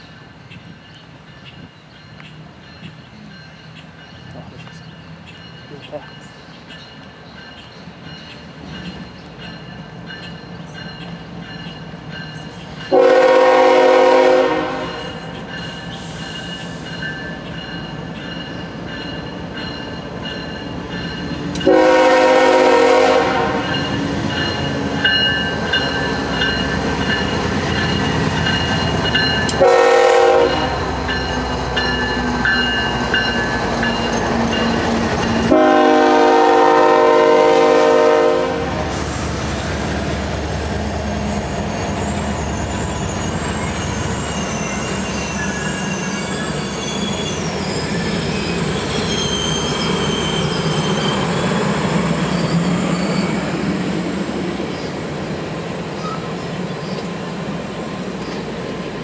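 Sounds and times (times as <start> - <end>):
train wheels on rails: 0.0 - 59.0
locomotive engine: 7.0 - 59.0
train air horn blasts: 12.9 - 15.2, 21.6 - 23.8, 29.6 - 30.9, 35.5 - 39.4.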